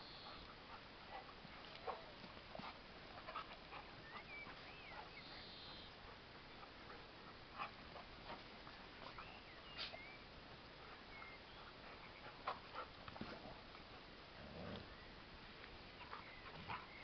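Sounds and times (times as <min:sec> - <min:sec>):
dogs scuffling on grass: 0:00.0 - 0:17.0
low dog sound: 0:00.1 - 0:10.2.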